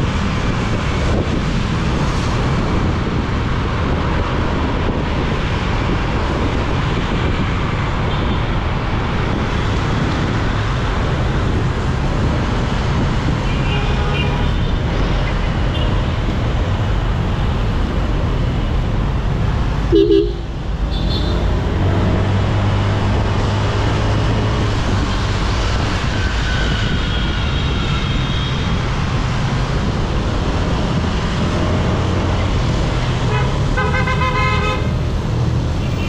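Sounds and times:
traffic noise: 0.0 - 36.0
scooter horn: 19.9 - 21.4, 33.3 - 34.9.

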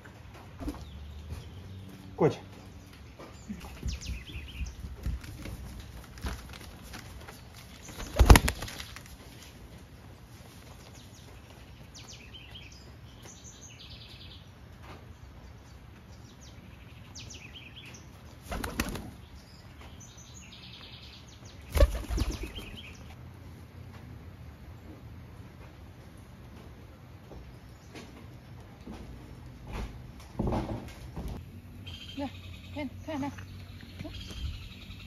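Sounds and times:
small birds chirping: 0.0 - 6.3, 7.0 - 23.2, 31.4 - 35.0
pigeons flapping wings: 3.8 - 9.4, 18.4 - 19.2, 21.7 - 22.9.

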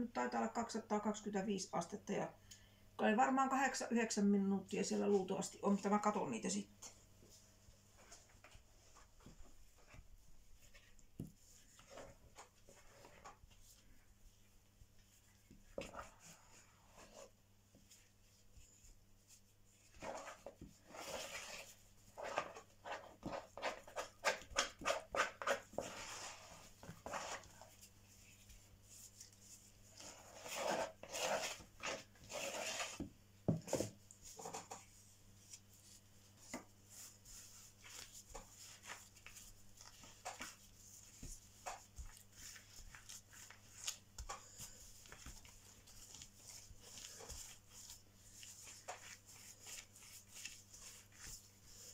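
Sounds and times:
hands rolling dough: 7.2 - 51.9
plastic spatula scraping bowl: 20.0 - 27.7, 29.9 - 34.8.

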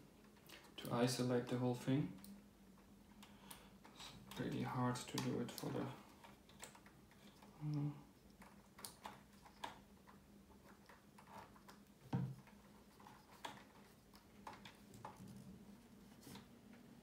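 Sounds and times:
small clicks of handling wires: 2.0 - 15.5.

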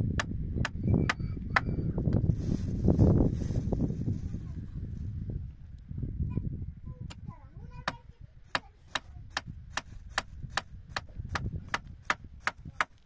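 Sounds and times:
sharp taps repeating evenly: 7.8 - 13.0.

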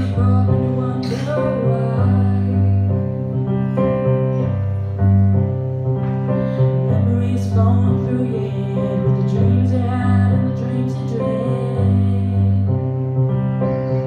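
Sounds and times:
woman singing ballad: 0.0 - 3.3, 6.8 - 12.9
keyboard piano chords: 0.0 - 14.0.

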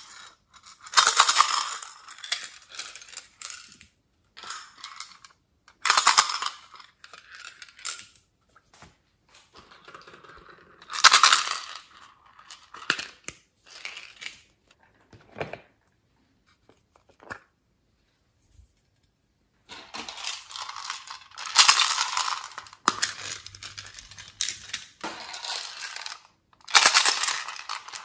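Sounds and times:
beads rattling: 19.7 - 28.0.

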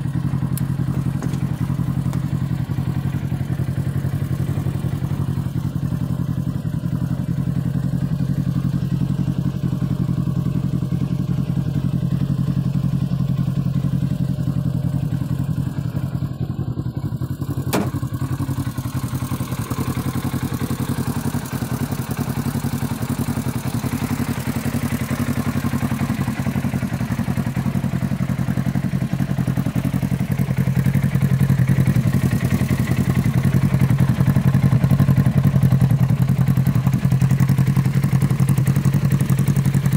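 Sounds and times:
engine idling: 0.0 - 39.9
sharp click: 17.7 - 18.0.

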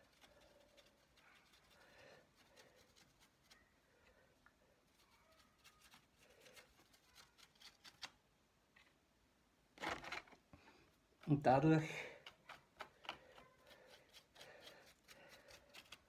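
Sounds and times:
paintbrush dabbing paint: 0.0 - 3.8
faint scratching: 0.0 - 8.2.

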